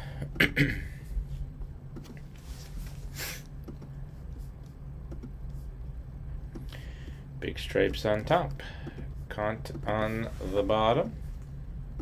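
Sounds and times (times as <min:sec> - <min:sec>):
low steady hum: 0:00.0 - 0:12.0
person sniffing: 0:03.0 - 0:03.5
computer mouse clicking: 0:03.6 - 0:04.0, 0:04.6 - 0:05.4.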